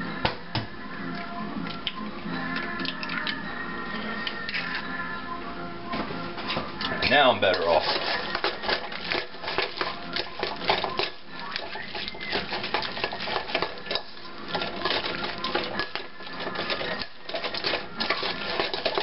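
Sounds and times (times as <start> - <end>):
hand squishing wet mixture: 7.0 - 19.0.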